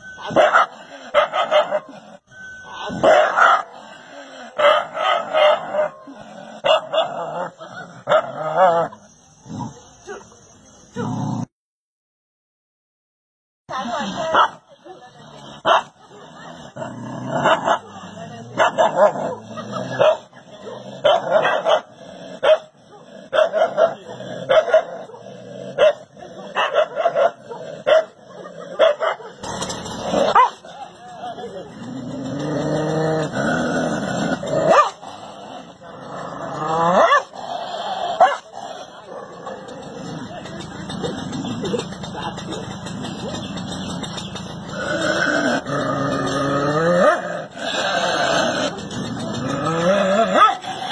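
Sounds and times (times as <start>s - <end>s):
dog barking: 0.2s - 1.9s, 2.8s - 3.8s, 4.6s - 7.2s, 14.2s - 14.6s, 15.6s - 16.0s, 18.6s - 29.6s, 30.2s - 30.9s, 34.6s - 35.0s, 36.9s - 37.3s, 38.2s - 38.5s, 50.3s - 50.7s.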